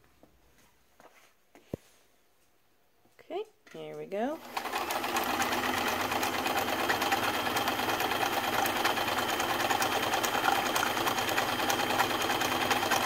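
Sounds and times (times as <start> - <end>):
sewing machine running: 4.4 - 13.0.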